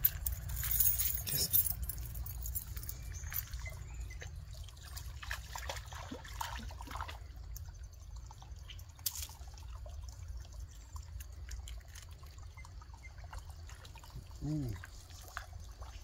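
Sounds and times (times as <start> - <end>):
dog splashing in water: 4.7 - 7.2.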